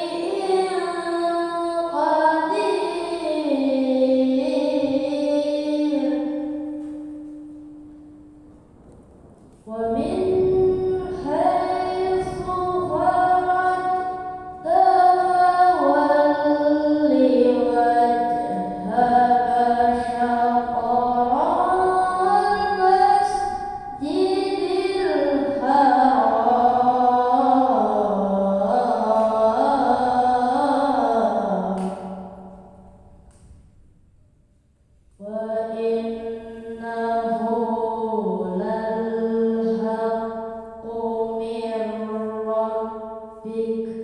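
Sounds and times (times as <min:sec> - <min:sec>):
boy chanting melodic recitation: 0:00.0 - 0:07.2, 0:09.6 - 0:32.4, 0:35.2 - 0:44.0.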